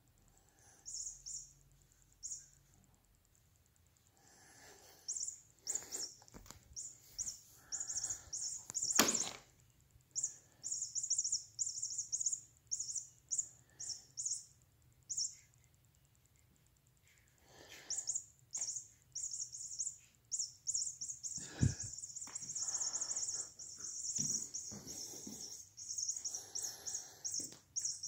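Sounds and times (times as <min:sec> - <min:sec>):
high-pitched bird-like chirps: 0:00.8 - 0:01.6, 0:02.2 - 0:02.6, 0:05.1 - 0:06.2, 0:06.8 - 0:09.3, 0:10.2 - 0:14.5, 0:15.1 - 0:15.5, 0:17.8 - 0:28.0.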